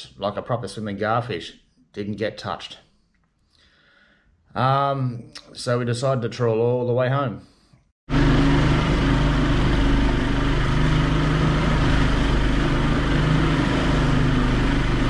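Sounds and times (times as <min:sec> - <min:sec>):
boat engine running: 0:08.1 - 0:15.0.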